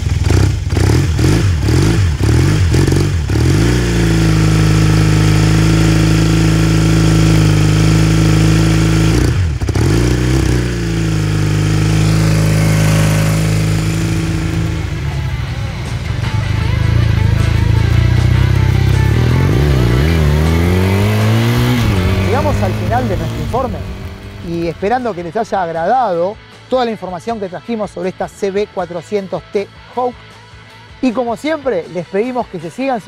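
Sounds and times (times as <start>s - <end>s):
motorcycle engine revving and idling: 0.0s - 26.4s.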